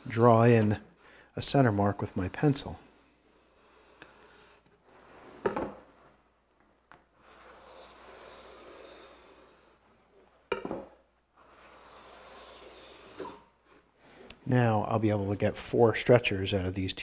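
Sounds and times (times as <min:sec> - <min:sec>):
pencil scratching on wood: 0:07.2 - 0:09.8, 0:11.4 - 0:13.8
metal square sliding along wood: 0:07.2 - 0:10.3, 0:11.4 - 0:14.2.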